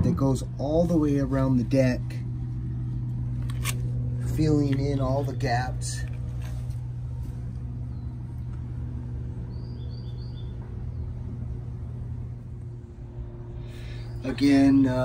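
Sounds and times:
low outdoor rumble: 0.0s - 15.0s
bird chirping: 9.4s - 11.4s.

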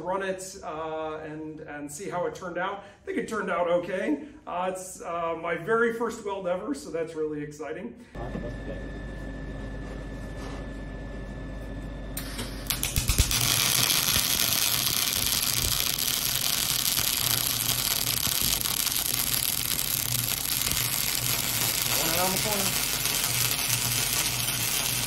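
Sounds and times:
gas hiss: 12.2s - 25.0s
welding arc crackling: 12.2s - 25.0s.

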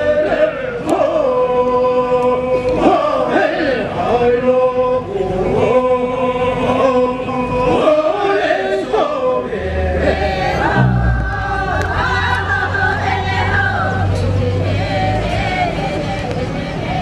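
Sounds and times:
group singing a chant: 0.0s - 17.0s
low steady hum: 8.8s - 16.4s.

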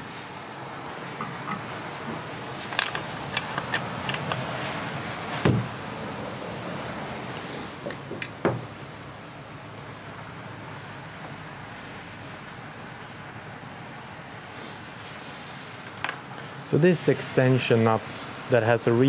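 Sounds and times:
metal clinks of wrench and nuts: 2.7s - 4.5s
heavy knocks: 5.4s - 5.7s.

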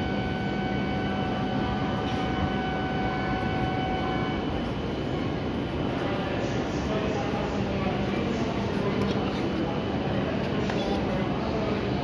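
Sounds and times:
electronic door warning tone: 0.0s - 4.7s
train hum: 0.0s - 12.0s.

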